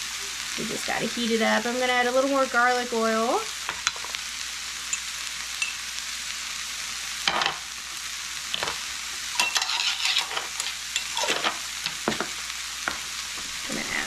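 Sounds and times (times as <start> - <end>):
vegetables sizzling in a pan: 0.0 - 14.0
utensil scraping a pan: 8.6 - 12.3.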